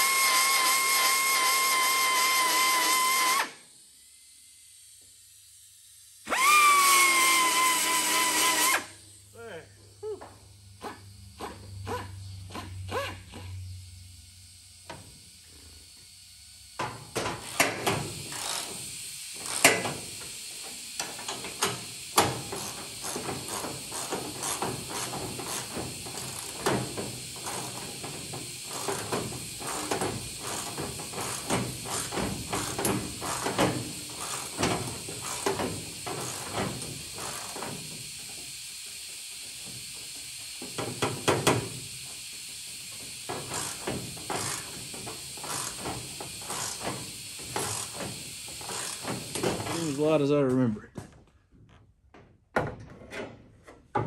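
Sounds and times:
steady hiss: 0:13.7 - 0:50.7.

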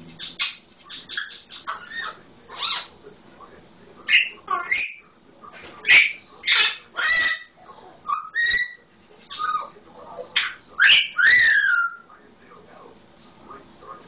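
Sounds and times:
parrot squawking and whistling: 0:00.2 - 0:02.9, 0:04.1 - 0:05.0, 0:05.8 - 0:07.5, 0:08.1 - 0:12.1.

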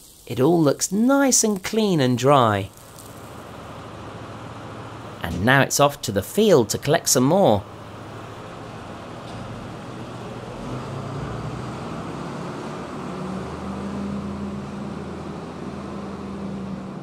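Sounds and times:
tractor diesel engine running: 0:02.8 - 0:05.6.

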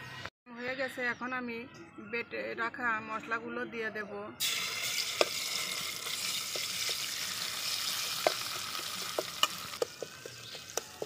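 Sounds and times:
spice paste sizzling in oil: 0:04.4 - 0:11.0.

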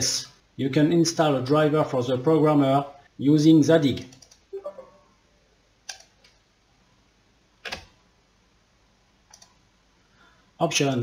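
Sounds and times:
faint room hush: 0:00.0 - 0:11.0
computer mouse clicks: 0:04.1 - 0:04.4, 0:05.8 - 0:06.4, 0:07.6 - 0:08.0, 0:09.2 - 0:09.6.

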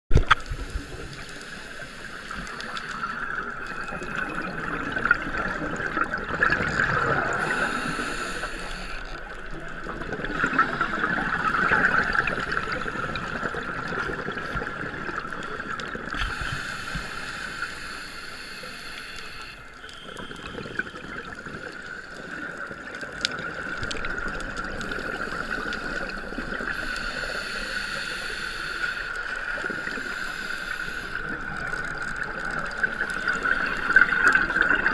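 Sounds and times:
regulator bubbles rushing: 0:02.9 - 0:07.6, 0:20.0 - 0:26.7, 0:31.2 - 0:34.9.

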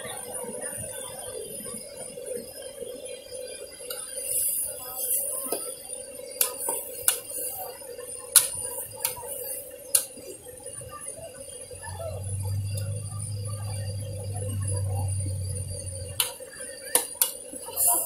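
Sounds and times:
hiss of frying: 0:03.9 - 0:10.5, 0:16.2 - 0:18.0
low steady hum: 0:10.8 - 0:16.4.

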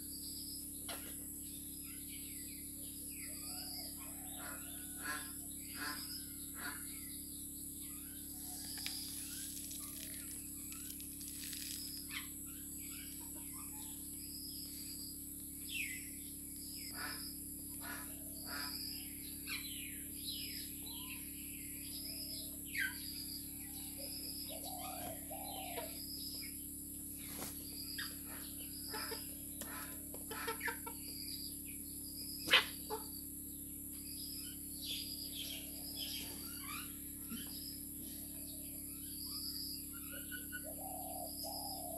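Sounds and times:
beaks pecking the ground: 0:08.3 - 0:14.8, 0:27.2 - 0:31.3
chickens clucking: 0:27.3 - 0:31.2.

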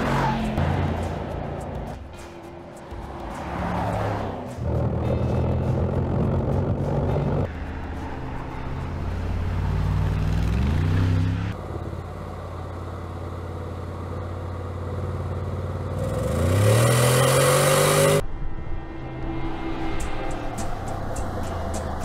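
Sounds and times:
car engine accelerating: 0:02.9 - 0:18.2.

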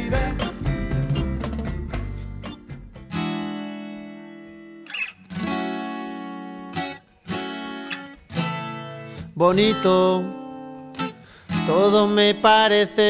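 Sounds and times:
lively music track: 0:00.0 - 0:04.8
strummed acoustic guitar chords: 0:00.0 - 0:13.0.

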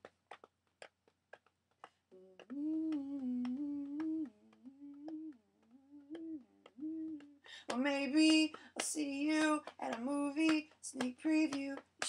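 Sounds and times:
person humming: 0:02.1 - 0:07.8.

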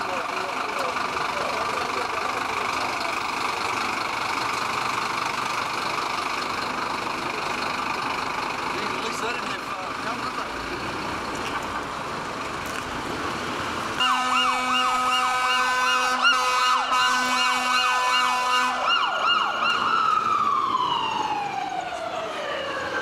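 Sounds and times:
street noise: 0:00.0 - 0:23.0
fire engine siren: 0:13.9 - 0:23.0.

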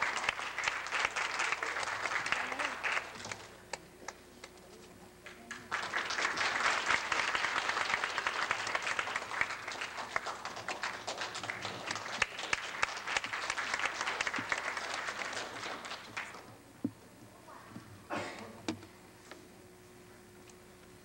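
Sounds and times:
audience applauding: 0:00.0 - 0:03.6, 0:05.5 - 0:16.5.

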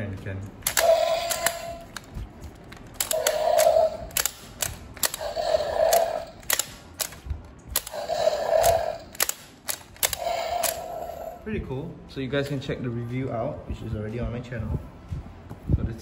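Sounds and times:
toy jaw mechanism clicking: 0:00.6 - 0:11.4.

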